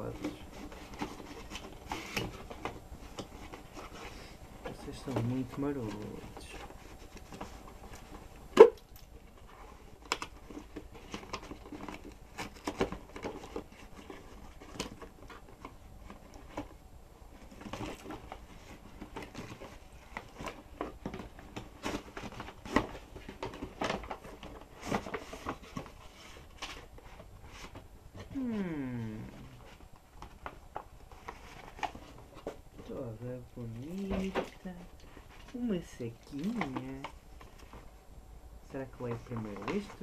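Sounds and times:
gift box being opened: 0:00.0 - 0:37.9, 0:38.7 - 0:40.0
tissue paper rustling: 0:09.2 - 0:38.0.

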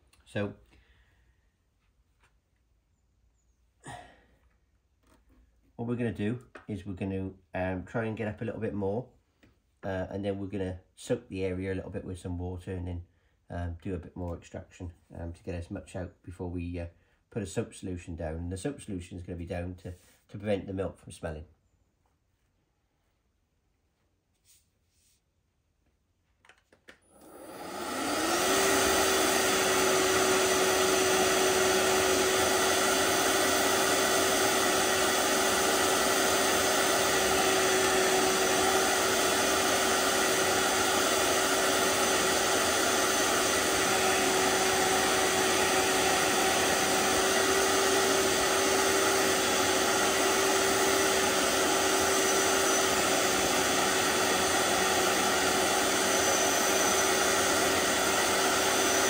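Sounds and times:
carpet cleaner motor whining: 0:27.0 - 0:59.0.

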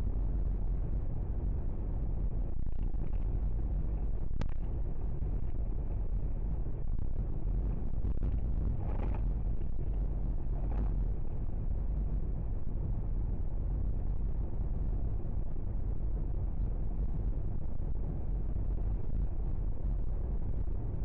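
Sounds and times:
car driving cabin rumble: 0:08.0 - 0:11.0.

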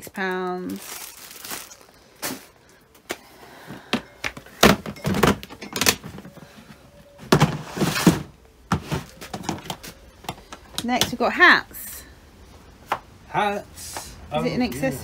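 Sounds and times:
plastic tubs thunking and knocking: 0:03.7 - 0:06.4, 0:07.2 - 0:11.2.

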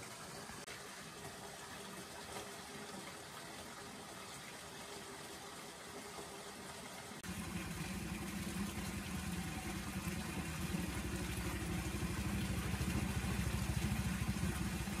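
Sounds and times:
engine running with rapid pulse: 0:07.2 - 0:15.0.

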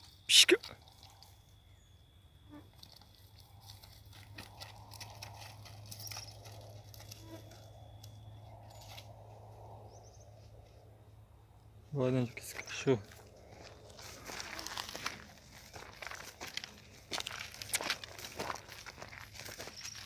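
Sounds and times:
footsteps through grass and leaves: 0:12.4 - 0:20.0.

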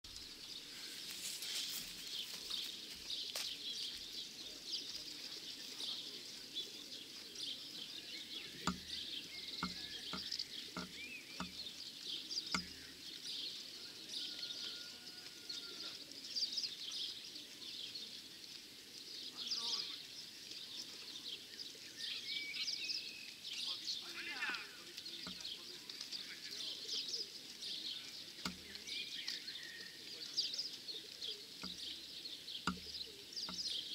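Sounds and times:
small birds chirping: 0:00.0 - 0:33.9
sharp knocks: 0:08.6 - 0:09.0, 0:09.6 - 0:11.6, 0:32.7 - 0:33.7.

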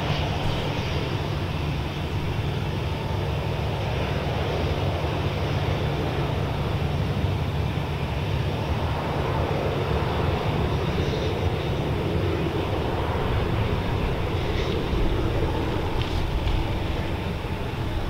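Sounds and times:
jet engines rumbling: 0:00.0 - 0:18.0.

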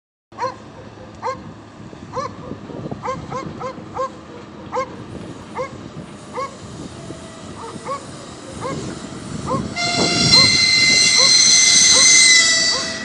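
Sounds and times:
dog barking: 0:00.4 - 0:01.4, 0:02.2 - 0:05.0, 0:06.4 - 0:06.6, 0:07.6 - 0:08.8.

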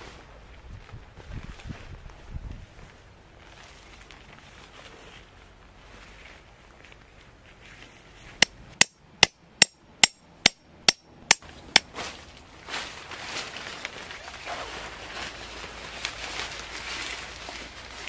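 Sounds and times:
tent fabric rustling: 0:00.0 - 0:08.3, 0:11.9 - 0:18.0
hammer striking tent stake: 0:08.4 - 0:11.9.

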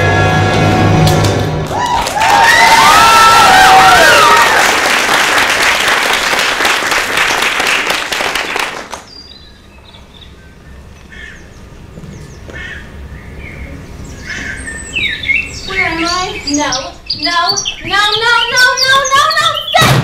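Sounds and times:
audience applauding: 0:01.1 - 0:09.1
bird chirps: 0:09.1 - 0:19.9.

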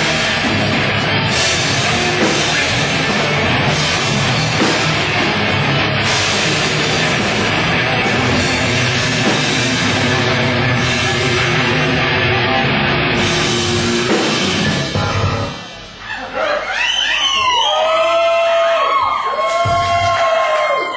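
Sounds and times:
heavy metal band playing: 0:00.0 - 0:16.4.

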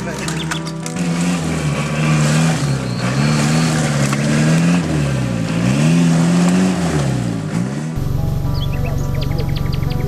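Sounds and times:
engine revving under load: 0:00.8 - 0:10.0.

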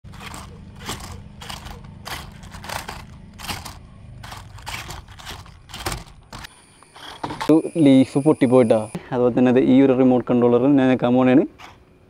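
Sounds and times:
tyres crunching on roof tiles: 0:00.0 - 0:06.5.

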